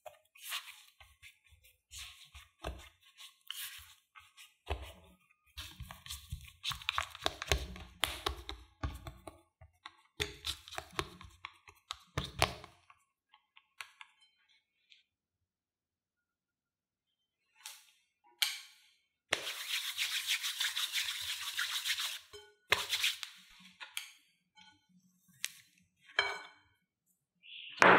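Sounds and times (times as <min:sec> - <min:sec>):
spatula scraping and squishing: 0:00.0 - 0:09.2, 0:19.3 - 0:23.8.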